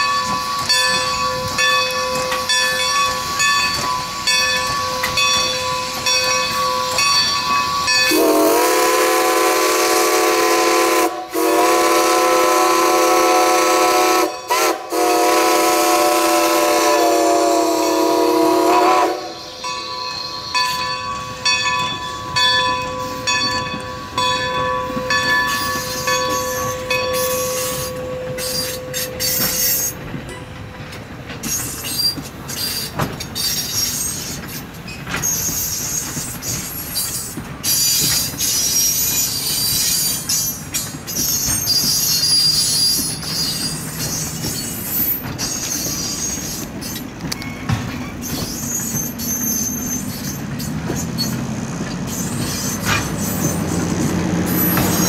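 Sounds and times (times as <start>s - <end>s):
train wheels clicking over rail joints: 0.0s - 55.0s
steam whistle chord: 8.1s - 19.6s
wheel-flange squeal: 19.2s - 55.0s.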